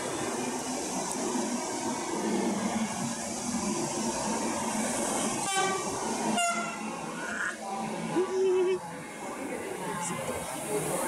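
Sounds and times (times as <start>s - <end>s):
rumble of trains moving: 0.0s - 11.0s
locomotive horn toots: 5.4s - 7.0s.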